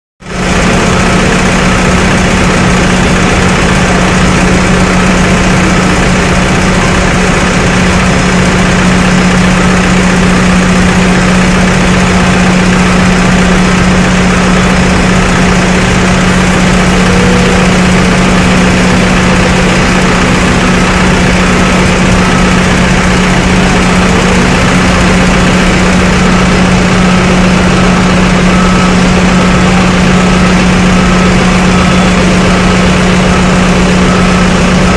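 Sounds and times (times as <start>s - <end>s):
engines idling drone: 0.2s - 34.9s.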